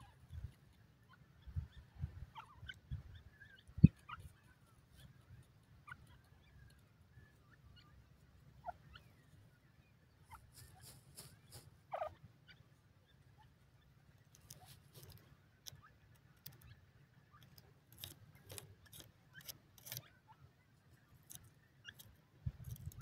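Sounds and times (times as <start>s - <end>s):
young birds chirping: 0.0s - 23.0s
sharp ticks: 14.2s - 20.2s, 21.2s - 23.0s.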